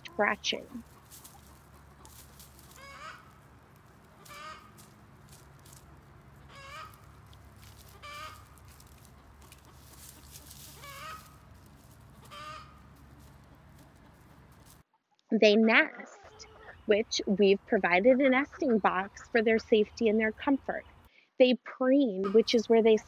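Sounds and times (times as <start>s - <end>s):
scratching in dry leaves: 0.0s - 14.8s
hens clucking: 0.0s - 14.9s, 15.9s - 20.8s, 22.2s - 23.0s.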